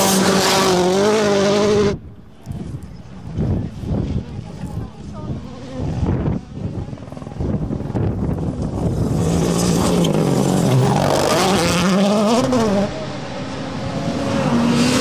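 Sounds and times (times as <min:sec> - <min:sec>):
rally car engines at full throttle: 0:00.0 - 0:15.0.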